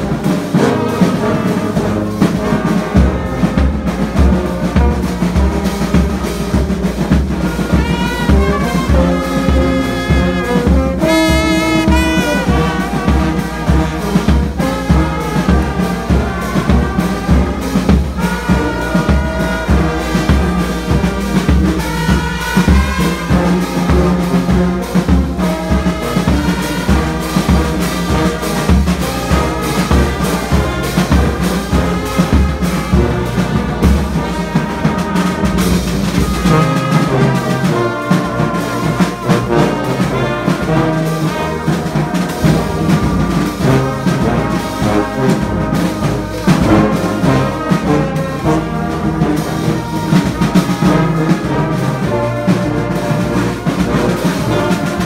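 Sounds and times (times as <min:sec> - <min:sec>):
brass band playing: 0:00.0 - 0:55.0.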